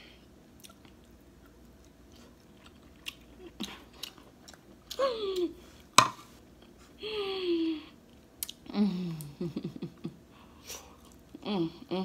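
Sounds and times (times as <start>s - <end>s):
person chewing: 0.5s - 6.0s, 8.0s - 8.7s
person humming: 8.7s - 9.7s, 11.4s - 12.0s.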